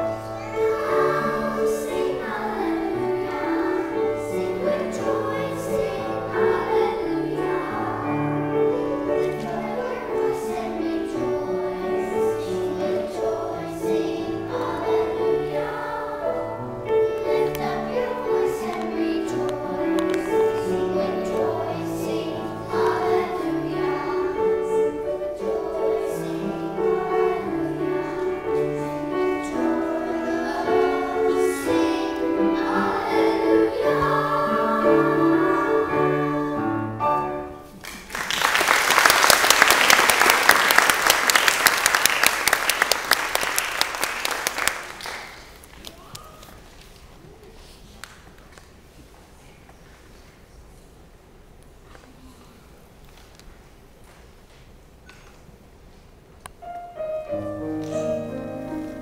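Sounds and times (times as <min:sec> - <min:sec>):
children's choir singing: 0:00.0 - 0:45.4, 0:56.6 - 0:59.0
audience applauding: 0:37.8 - 0:46.0.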